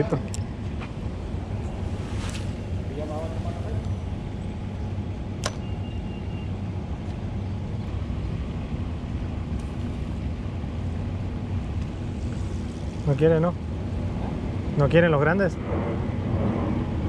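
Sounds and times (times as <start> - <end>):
low outdoor rumble: 0.0 - 17.0
sharp click: 5.4 - 5.7.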